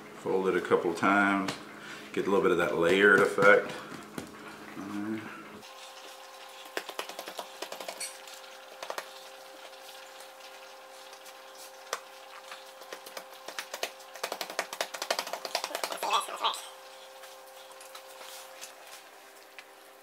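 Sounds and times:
hands kneading dough: 2.2s - 5.2s, 6.4s - 16.3s.

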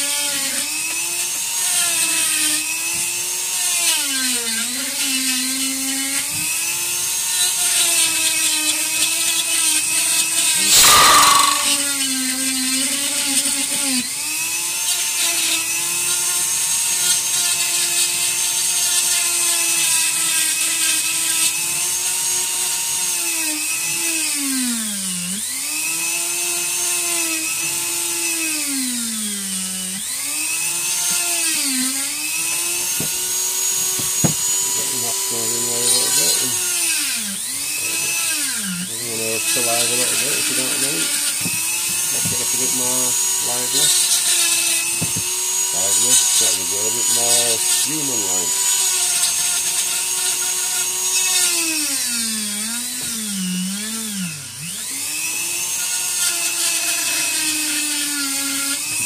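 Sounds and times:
rotary carving tool cutting wood: 0.0s - 59.0s
loud noisy burst: 10.6s - 11.9s.

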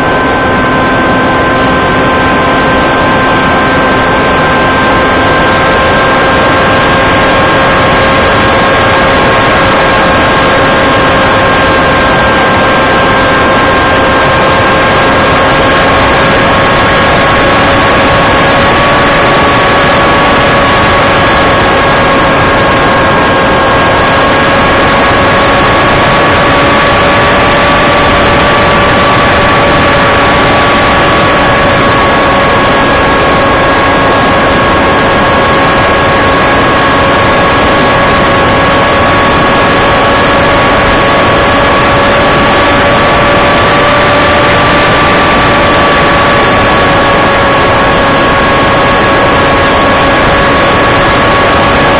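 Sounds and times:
small aircraft engine drone: 0.0s - 51.9s
wind rush on microphone: 0.0s - 51.9s.

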